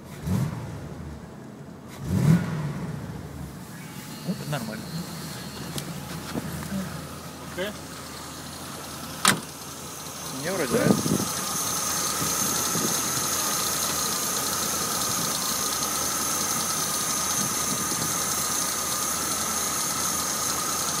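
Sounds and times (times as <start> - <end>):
car engine idling: 0.0 - 21.0
high whine: 2.9 - 19.5.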